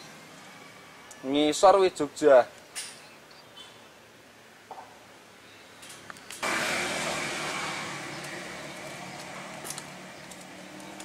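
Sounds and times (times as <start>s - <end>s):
passing motor vehicle: 6.4s - 11.0s.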